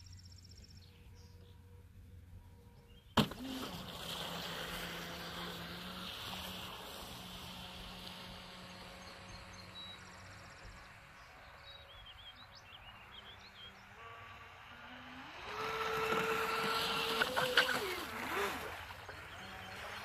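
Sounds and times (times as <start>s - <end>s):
boat motor whine: 0.0s - 20.0s
bird chirping: 8.8s - 14.0s.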